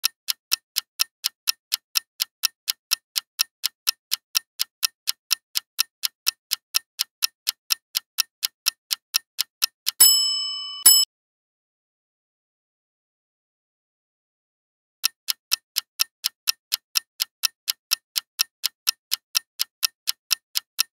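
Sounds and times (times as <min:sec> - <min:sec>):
clock ticking: 0:00.0 - 0:11.1, 0:15.0 - 0:20.9
bright ringing tone: 0:10.0 - 0:11.1.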